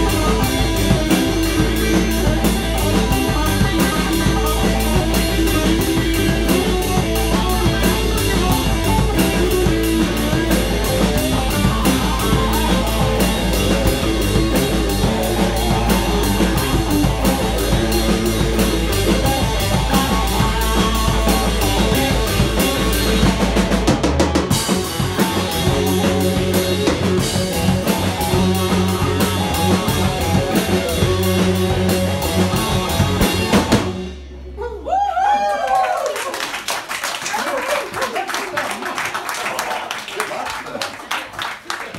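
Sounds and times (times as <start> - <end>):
blues rock band playing: 0.0 - 34.7.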